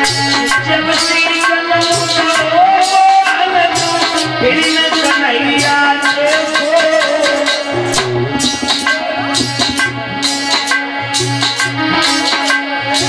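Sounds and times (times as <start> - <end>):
man singing: 0.0 - 9.9
harmonium: 0.0 - 13.0
tabla beat: 0.0 - 13.0.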